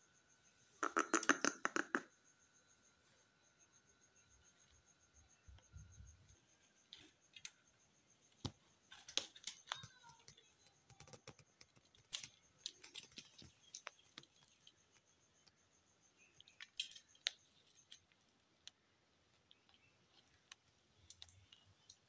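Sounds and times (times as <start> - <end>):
parrot clicking: 0.8 - 2.1.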